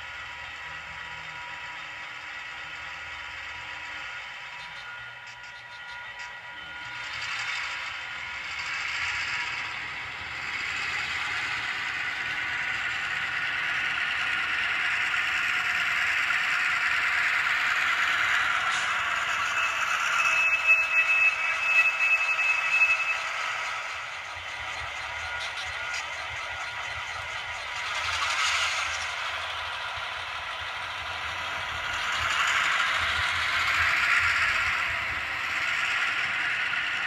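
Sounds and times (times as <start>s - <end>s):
model train engine sound: 0.0s - 37.0s
model train wheels clattering: 4.0s - 37.0s
thin high squeal: 17.7s - 26.5s.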